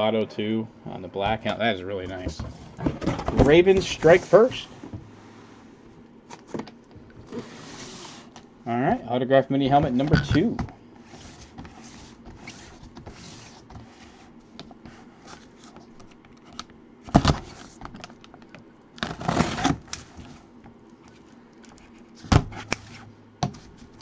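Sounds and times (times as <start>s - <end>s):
cardboard rustling and scraping: 1.3s - 5.7s, 6.3s - 8.4s, 9.7s - 16.2s, 19.0s - 20.5s.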